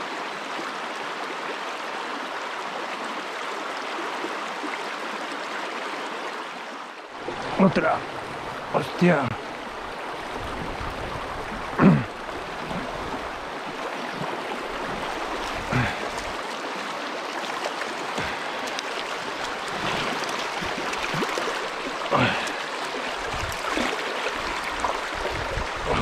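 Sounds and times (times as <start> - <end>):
river rushing over rapids: 7.1 - 26.0.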